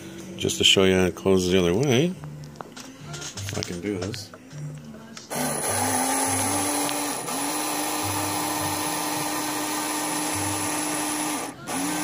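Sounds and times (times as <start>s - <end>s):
small electric motor whirring: 5.3s - 12.0s.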